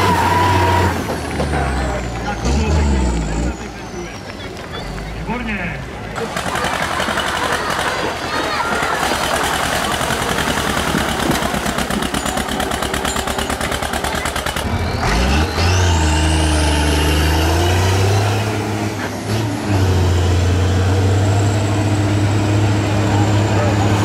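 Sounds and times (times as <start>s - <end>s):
large tractor diesel under load: 0.0s - 24.0s
tractor diesel engine pounding: 0.0s - 24.0s.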